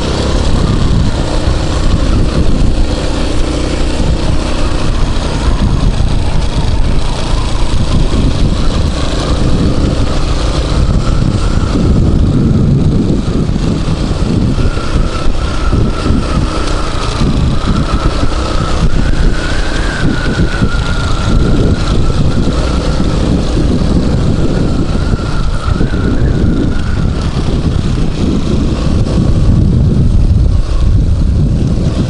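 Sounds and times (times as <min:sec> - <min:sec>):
dirt bike engine: 0:00.0 - 0:32.0
thin steady whine: 0:00.0 - 0:32.0
wind buffeting microphone: 0:00.0 - 0:32.0.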